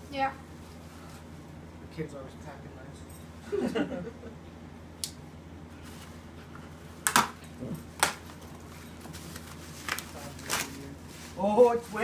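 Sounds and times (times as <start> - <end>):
bubble wrap crackling: 8.7 - 12.0.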